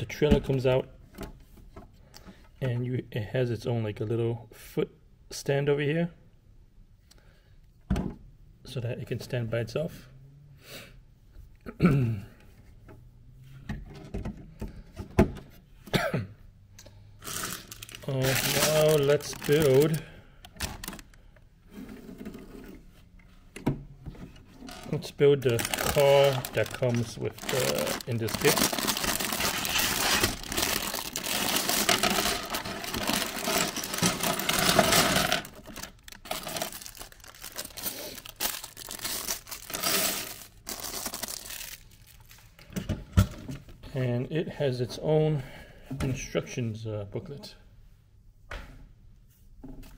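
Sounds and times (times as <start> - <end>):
plastic bag crinkling: 17.2 - 21.2, 24.8 - 42.6
plastic bricks clattering on table: 24.7 - 38.3
plastic bricks knocking and clicking: 30.4 - 36.9.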